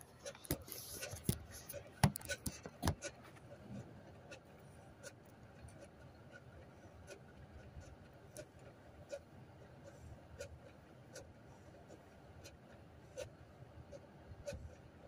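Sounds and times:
phone being handled: 0.2s - 3.1s.

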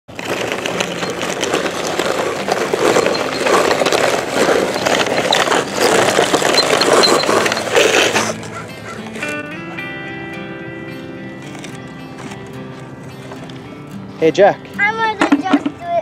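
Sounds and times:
stones clicking: 0.1s - 8.3s
toy bulldozer grinding through gravel: 0.1s - 9.3s.

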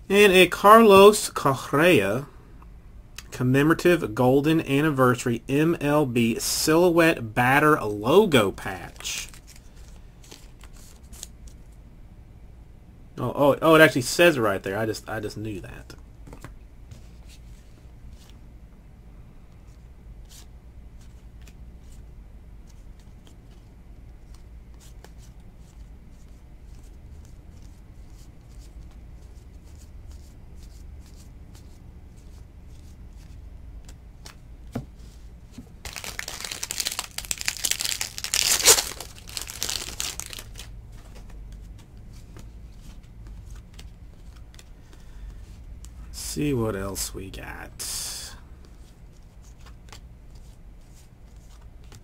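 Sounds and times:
foil wrapper tearing and crinkling: 35.9s - 40.7s.

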